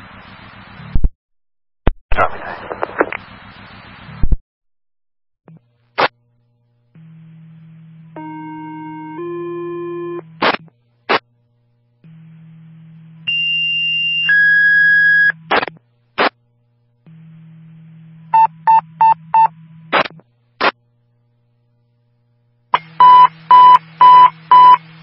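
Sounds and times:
radio tones: 2.1 - 3.3
radio static bursts: 2.1 - 4.4, 10.4 - 11.2, 15.5 - 16.4
low steady hum: 5.5 - 25.0.

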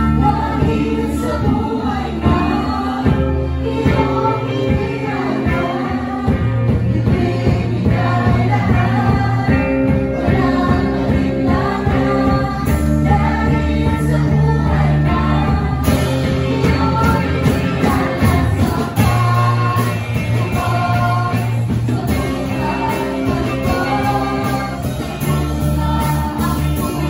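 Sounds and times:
amplified band: 0.0 - 27.0
group singing worship song: 0.0 - 27.0.

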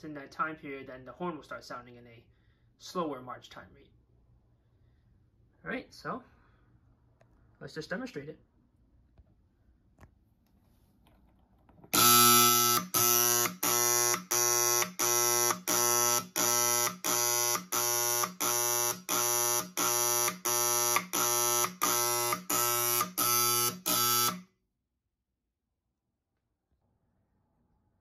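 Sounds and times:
pulsing alarm horn buzzing: 11.9 - 24.5.

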